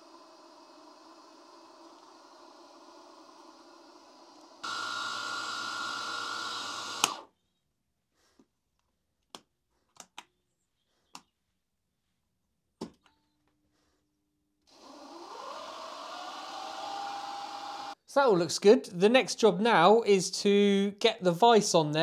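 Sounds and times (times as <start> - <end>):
mill spindle motor whine: 0.0 - 7.2, 14.7 - 18.0.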